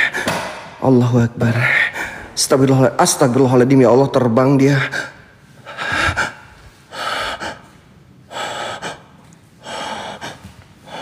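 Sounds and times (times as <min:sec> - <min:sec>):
man breathing heavily: 0:00.0 - 0:00.4, 0:01.5 - 0:02.4, 0:04.6 - 0:11.0.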